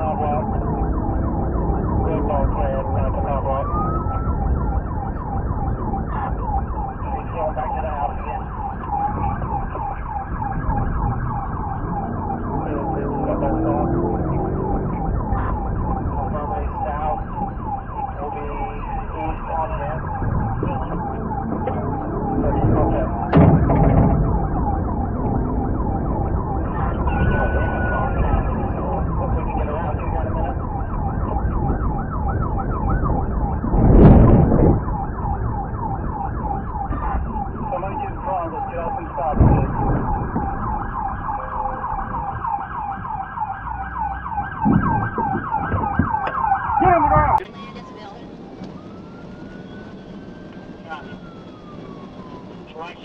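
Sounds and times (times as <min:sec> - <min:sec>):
engine and road rumble: 0:00.0 - 0:53.0
police siren yelping: 0:00.0 - 0:53.0
loud thump: 0:22.6 - 0:24.6, 0:33.7 - 0:34.9, 0:39.3 - 0:40.7, 0:44.6 - 0:47.4.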